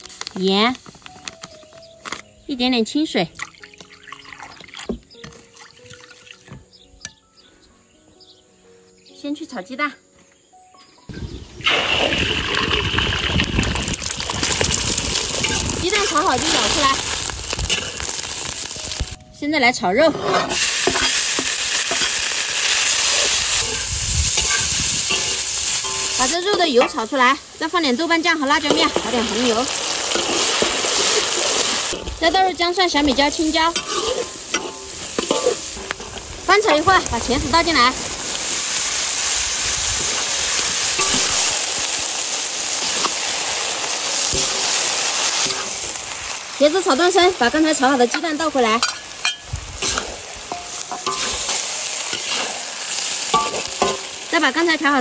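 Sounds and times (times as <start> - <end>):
pork sizzling in a wok: 11.2 - 19.2, 20.2 - 55.0.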